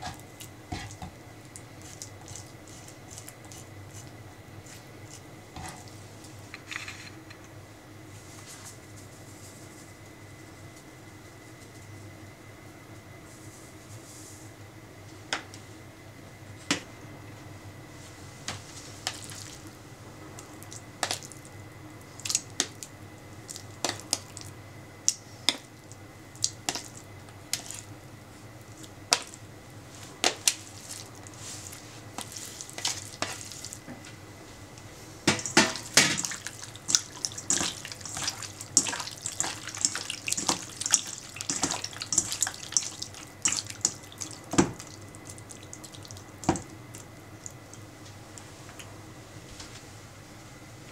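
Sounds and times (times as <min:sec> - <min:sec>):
wet squelching and splashing: 0:35.4 - 0:46.6.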